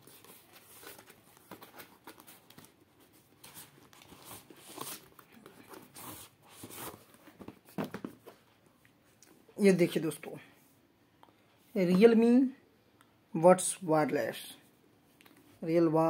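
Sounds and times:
cardboard packaging rustling: 0.0s - 8.6s.

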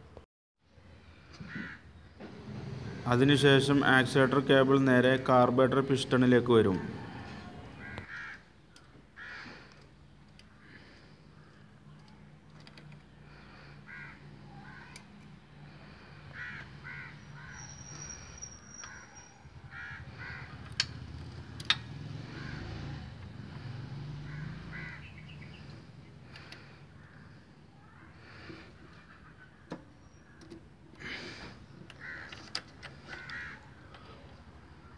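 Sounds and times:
crows cawing: 1.2s - 1.9s, 6.7s - 11.6s, 13.2s - 20.9s, 22.2s - 25.6s, 26.2s - 34.2s
sharp clicks: 20.6s - 21.9s.

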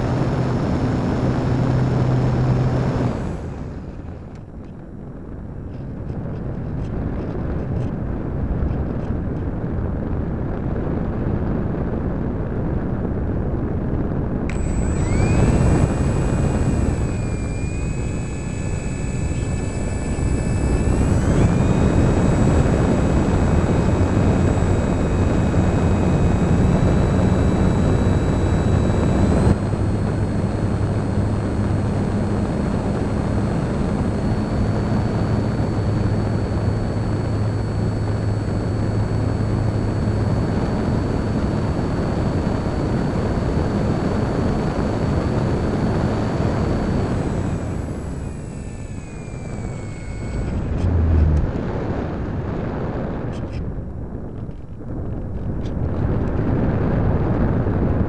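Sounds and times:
electric motor whine: 0.0s - 4.7s, 14.4s - 53.7s
propeller noise: 0.0s - 8.1s, 13.1s - 53.6s.

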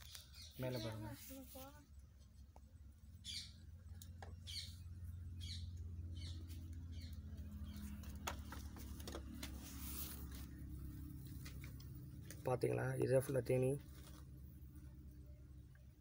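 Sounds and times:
small bird chirping: 0.0s - 1.8s, 3.1s - 9.0s.

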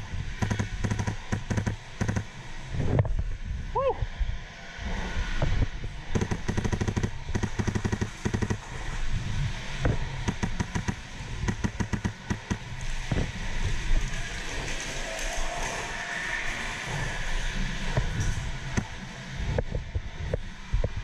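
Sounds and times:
airsoft guns firing bursts: 0.4s - 2.3s, 6.1s - 8.6s, 10.2s - 12.6s.

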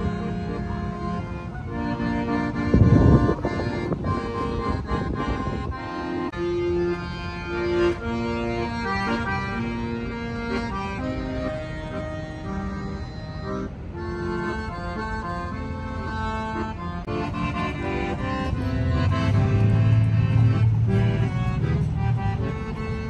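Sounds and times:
accordion playing: 0.0s - 23.0s
loud rumble: 17.0s - 23.0s.

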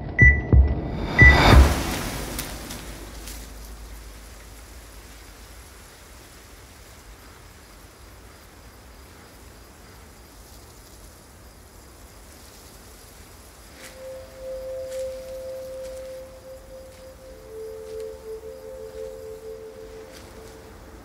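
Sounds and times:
low rumble: 0.0s - 5.1s
even hiss: 1.4s - 21.0s
faint insect chirring: 3.0s - 21.0s.

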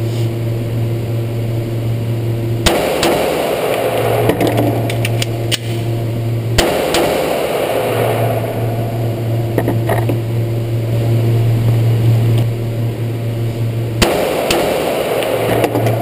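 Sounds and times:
ventilation hum: 0.0s - 16.0s
pistol shot: 2.6s - 5.7s, 6.6s - 8.7s, 14.0s - 16.0s.

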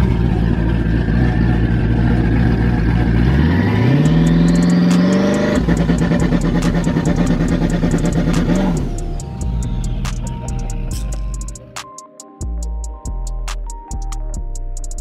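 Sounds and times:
car engine revving: 0.0s - 11.6s.

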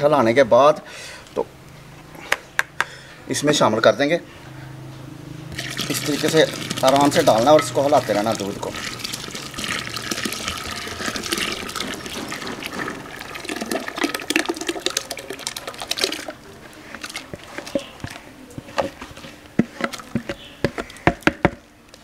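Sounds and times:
paste pouring and splashing: 5.5s - 17.9s.

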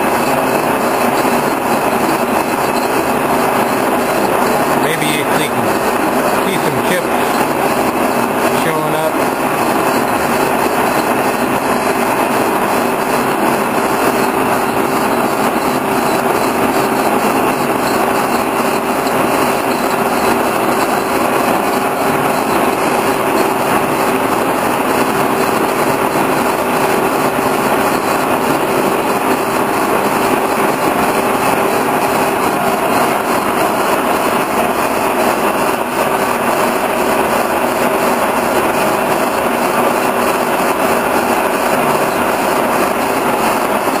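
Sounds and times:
boring mill machine hum: 0.0s - 44.0s.

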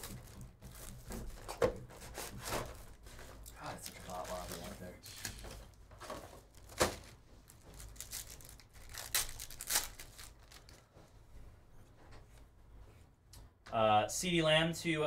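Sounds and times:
foil wrapper crinkling: 2.7s - 5.8s, 6.4s - 10.9s
foil wrapper tearing: 6.7s - 10.8s.

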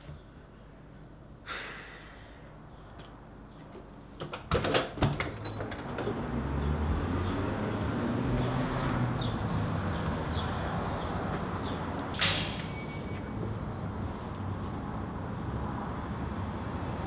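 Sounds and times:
door opening and shutting: 4.4s - 6.3s, 12.2s - 13.3s.

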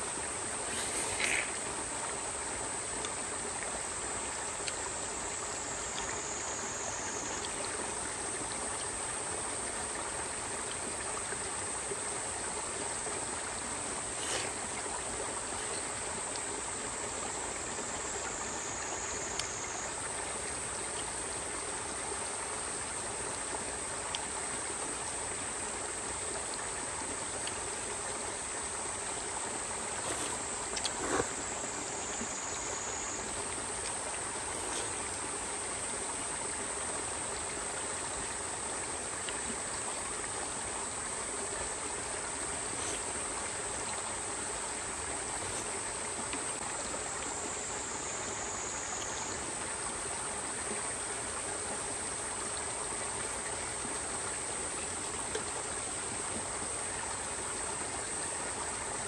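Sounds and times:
stream flowing: 0.0s - 59.0s
high-pitched insect buzz: 0.6s - 1.8s, 29.9s - 35.2s.

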